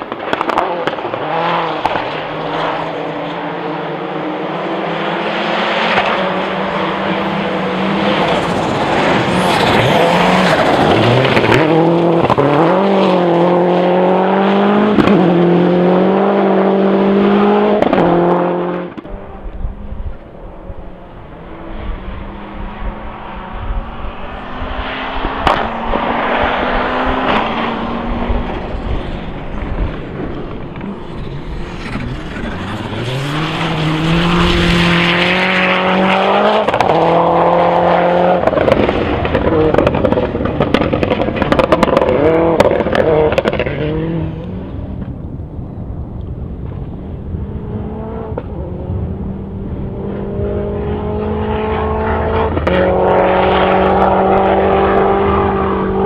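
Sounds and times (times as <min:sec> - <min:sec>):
rally car engine running hard: 0:47.4 - 0:56.0.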